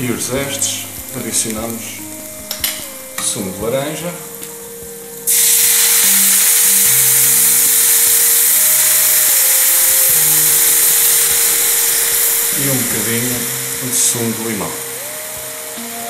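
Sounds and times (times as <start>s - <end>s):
juice sizzling in hot pan: 5.2s - 16.0s.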